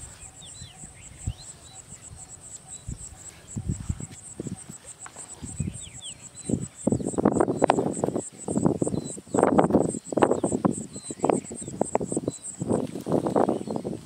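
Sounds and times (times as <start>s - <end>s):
bird chirps: 0.0s - 14.0s
crickets chirping: 0.0s - 14.0s.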